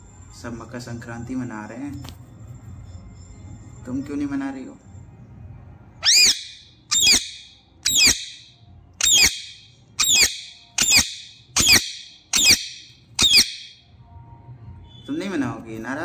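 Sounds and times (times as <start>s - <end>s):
parakeet screeching: 6.0s - 13.8s.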